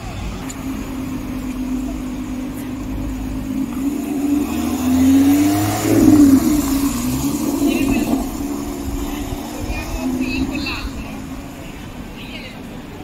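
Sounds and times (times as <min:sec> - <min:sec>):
car engine accelerating past: 0:00.0 - 0:13.0.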